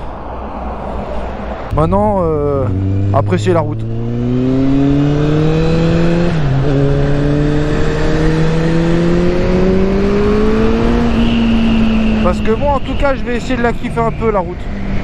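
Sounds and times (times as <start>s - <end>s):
motorcycle engine accelerating: 1.7s - 12.4s.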